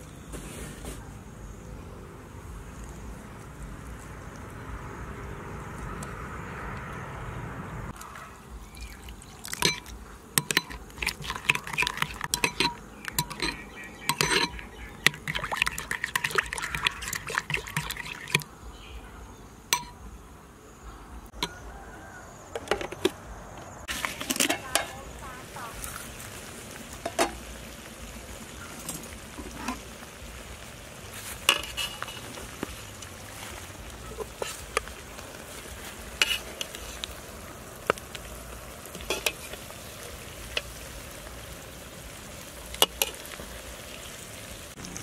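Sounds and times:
liquid pouring into a bowl: 0:08.6 - 0:18.5
metal spoon clinking against bowl: 0:09.6 - 0:18.4, 0:19.8 - 0:20.0.

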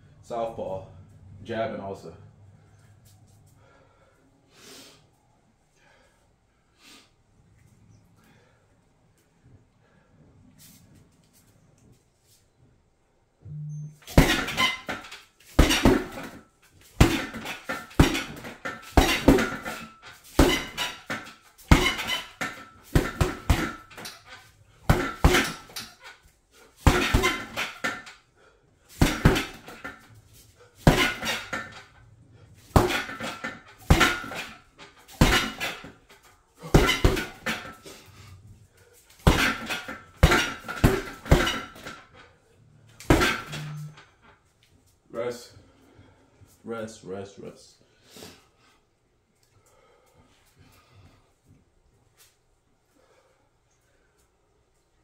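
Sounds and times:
metallic rattle of bag stand: 0:14.0 - 0:28.2, 0:29.0 - 0:38.0
punches hitting heavy bag: 0:14.1 - 0:16.4, 0:17.0 - 0:24.2, 0:24.8 - 0:25.9, 0:26.8 - 0:28.0, 0:29.0 - 0:30.0, 0:30.8 - 0:31.8, 0:32.7 - 0:36.0, 0:36.6 - 0:37.8, 0:39.2 - 0:41.9, 0:43.0 - 0:43.7.

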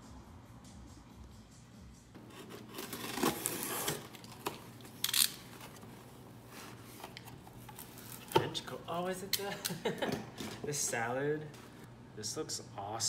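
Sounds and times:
box cutter cutting cardboard: 0:02.2 - 0:04.6
cardboard ripping: 0:02.2 - 0:08.4
cardboard scraping and rustling: 0:02.2 - 0:08.6.

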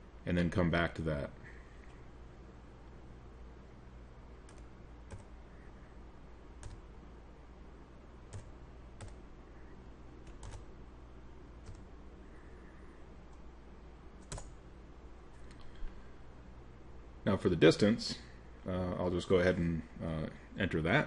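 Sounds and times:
faint low hum: 0:00.0 - 0:21.0
keyboard keystrokes: 0:10.3 - 0:10.7.

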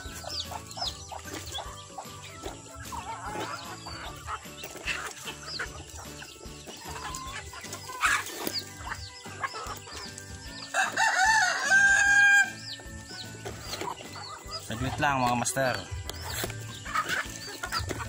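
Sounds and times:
chickens clucking: 0:00.0 - 0:18.0
chicks peeping: 0:00.0 - 0:18.0
rooster crowing: 0:10.7 - 0:12.6.

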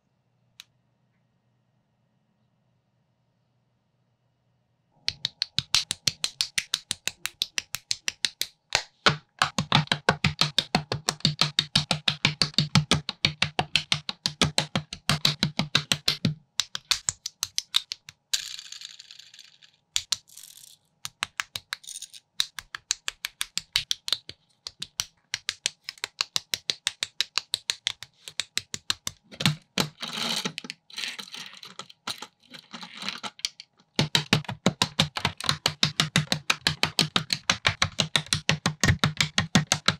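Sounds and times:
scratchy noise: 0:29.4 - 0:33.3.

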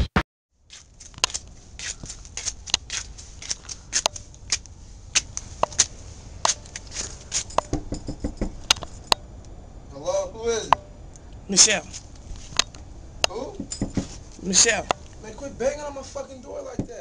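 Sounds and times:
footsteps on gritty concrete: 0:00.7 - 0:07.7
dull thuds: 0:13.2 - 0:17.0.

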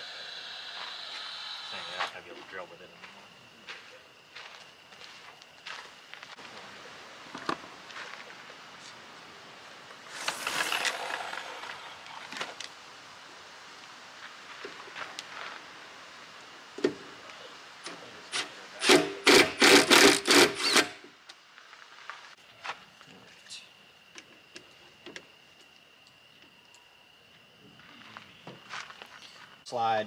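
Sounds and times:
rustle: 0:04.1 - 0:18.9, 0:20.6 - 0:29.6.

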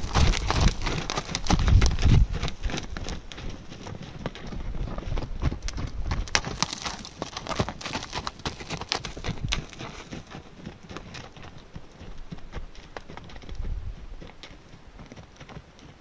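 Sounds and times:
horse hooves trotting on dirt: 0:00.0 - 0:16.0.

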